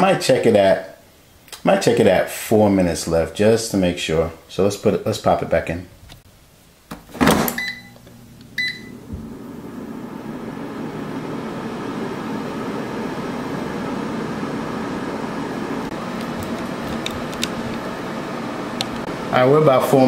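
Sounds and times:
air fryer fan humming: 0:07.0 - 0:20.0
short beeps: 0:07.6 - 0:08.0, 0:08.6 - 0:08.9.

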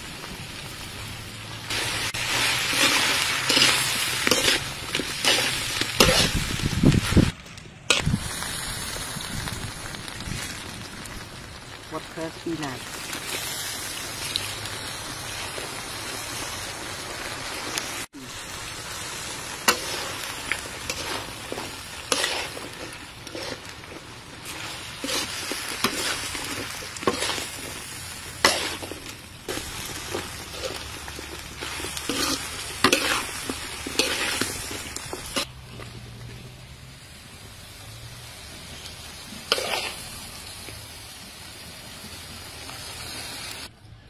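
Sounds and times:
food sizzling in a wok: 0:00.0 - 0:43.7
utensil clacking and scraping wok: 0:01.7 - 0:08.2, 0:18.9 - 0:36.7, 0:38.8 - 0:40.8.

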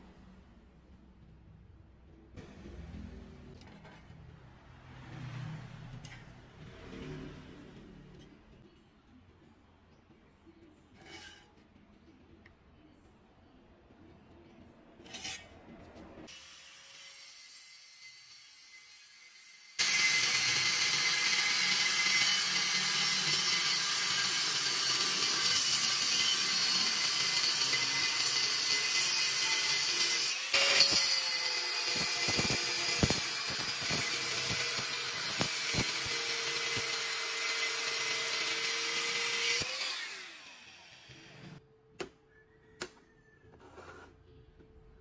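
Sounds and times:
angle grinder cutting steel: 0:16.3 - 0:41.6.

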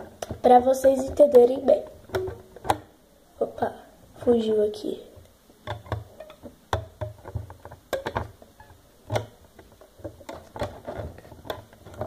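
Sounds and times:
plastic loom clicks and taps: 0:02.1 - 0:02.9, 0:05.6 - 0:08.3, 0:09.1 - 0:12.0.

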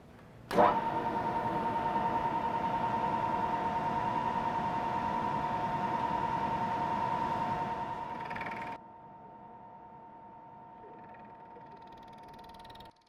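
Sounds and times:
cnc mill spindle whining: 0:00.6 - 0:08.8.

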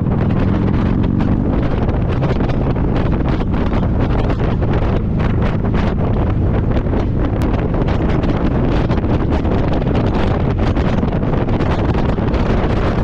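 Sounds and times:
motorcycle engine droning: 0:00.0 - 0:13.0
wind buffeting microphone: 0:00.0 - 0:13.0.

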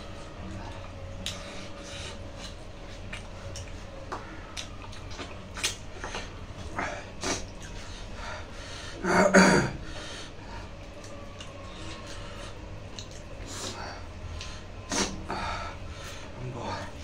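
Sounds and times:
eating clicks and smacks: 0:00.6 - 0:06.4, 0:10.8 - 0:12.2, 0:12.8 - 0:15.2.

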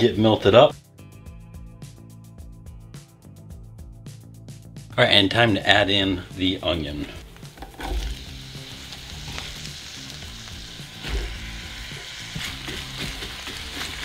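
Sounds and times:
onion sizzling in butter: 0:06.4 - 0:14.0.

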